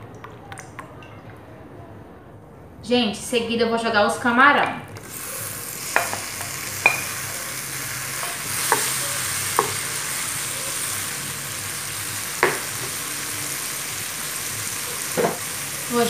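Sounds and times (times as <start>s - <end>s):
shrimp sizzling in frying pan: 4.9s - 16.0s
wooden spoon knocking pan: 6.0s - 7.1s, 12.4s - 12.7s.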